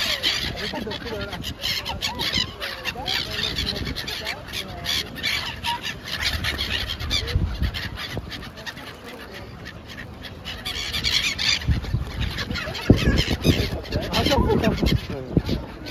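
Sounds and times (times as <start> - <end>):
gulls squawking: 0.0 - 15.9.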